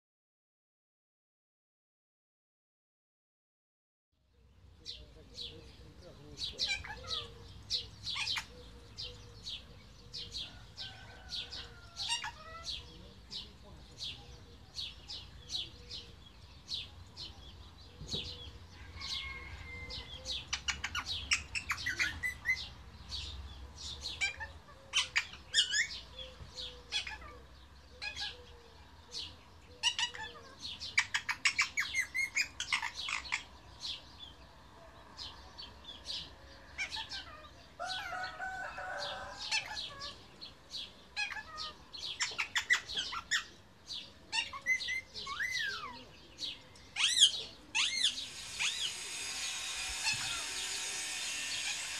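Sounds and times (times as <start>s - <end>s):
parrot chirping and chattering: 6.5s - 9.2s, 11.9s - 12.8s, 20.4s - 23.3s, 24.1s - 28.4s, 29.8s - 33.6s, 36.7s - 38.4s, 39.5s - 43.6s, 44.3s - 46.0s, 46.8s - 51.9s
parrot warbling call: 11.6s - 12.8s, 26.9s - 28.4s, 36.8s - 40.2s, 41.2s - 43.5s, 47.0s - 51.9s.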